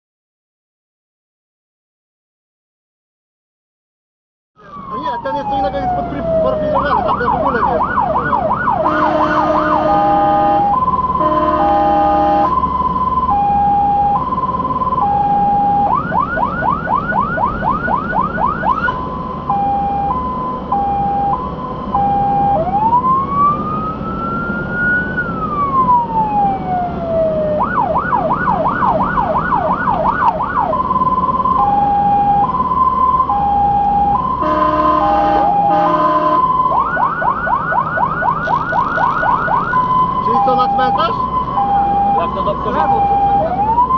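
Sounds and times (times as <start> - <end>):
engine and road rumble: 4.6 - 43.9
fire engine siren: 4.6 - 43.9
horn blasts: 8.8 - 12.6, 34.4 - 36.5.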